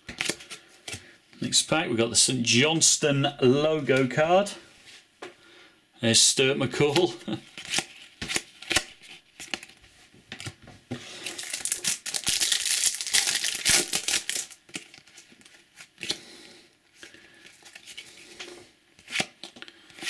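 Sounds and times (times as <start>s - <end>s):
foil packet crackling: 11.1s - 15.6s.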